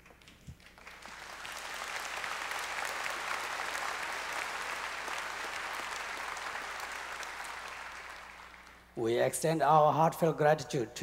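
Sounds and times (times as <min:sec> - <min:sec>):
audience applauding: 0:00.6 - 0:08.9.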